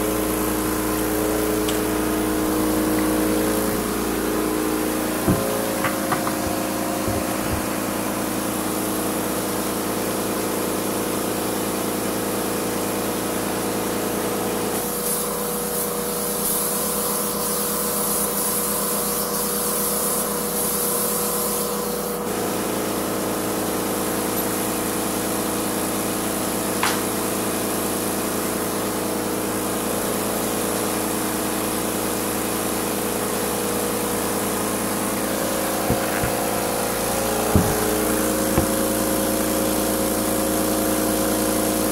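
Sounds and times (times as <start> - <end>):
paint sprayer humming: 0.0 - 10.4, 32.9 - 41.9
spray gun hissing: 0.2 - 8.8.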